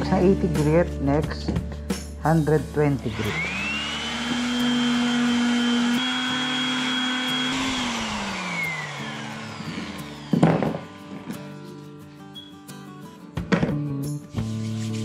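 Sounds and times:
electric sander whining: 3.1 - 12.0.

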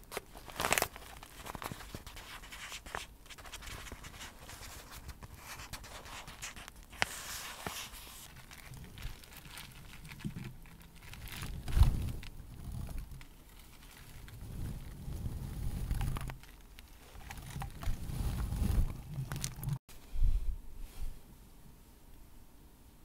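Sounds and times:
fingers crinkling plastic bag: 0.0 - 19.8
wig hair rustling: 0.0 - 19.8.

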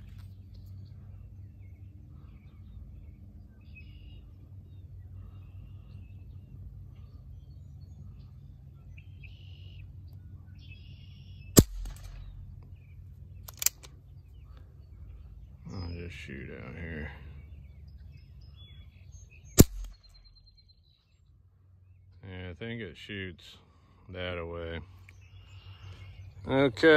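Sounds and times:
faint birds chirping: 0.0 - 26.9
low outdoor background: 0.0 - 26.9
sharp pistol shot: 11.6 - 12.4, 19.6 - 20.2.

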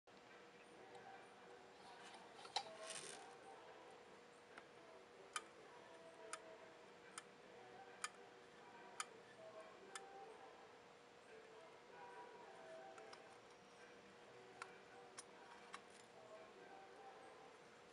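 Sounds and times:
handling rustle: 1.8 - 3.4.

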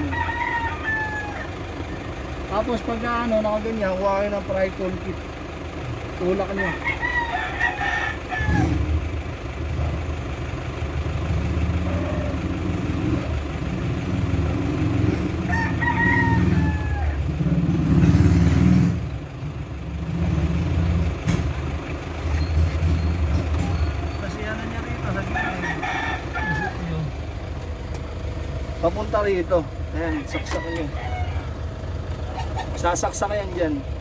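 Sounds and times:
rooster crowing: 0.0 - 2.1, 6.5 - 9.0, 15.3 - 17.3, 25.0 - 27.1, 30.0 - 32.6
low vehicle rumble: 0.0 - 34.0.

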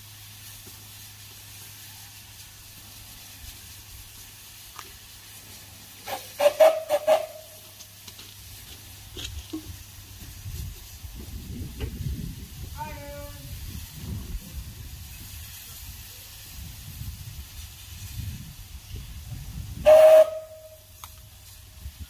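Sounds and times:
steam engine exhaust chuffs: 0.0 - 22.0
steam hissing: 0.0 - 22.0
low rumble of moving engine: 7.8 - 19.8.

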